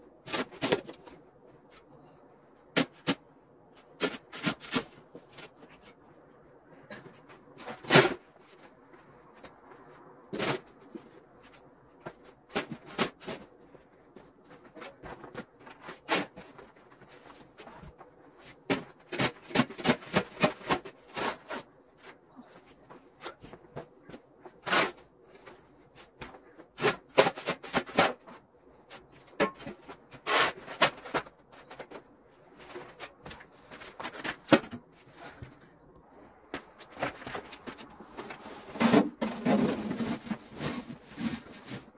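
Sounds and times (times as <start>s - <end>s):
snow shovel scraping ice: 30.1s - 31.0s.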